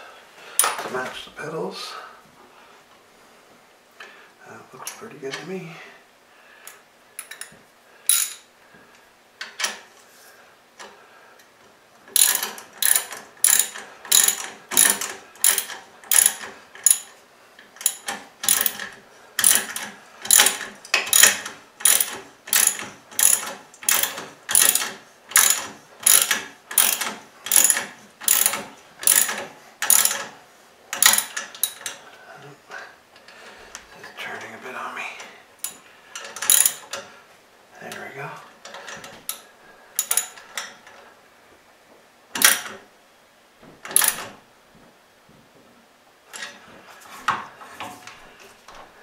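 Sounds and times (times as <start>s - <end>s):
ratchet wrench clicking: 8.1s - 8.4s, 12.2s - 17.1s, 17.8s - 30.3s, 31.0s - 32.0s, 35.6s - 36.9s, 40.0s - 40.4s, 43.9s - 44.2s.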